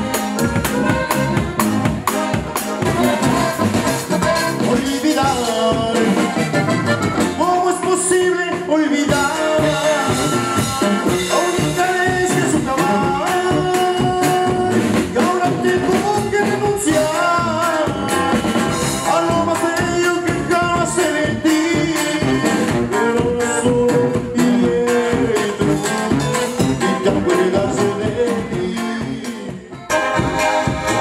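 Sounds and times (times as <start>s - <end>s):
live band playing dance music: 0.0s - 31.0s.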